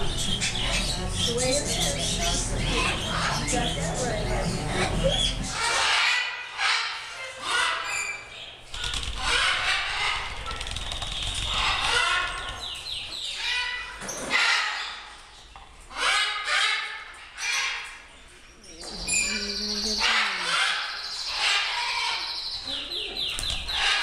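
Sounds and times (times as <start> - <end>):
parakeet chattering calls: 0.0 - 15.1, 19.1 - 24.0
wings fluttering: 8.7 - 12.9.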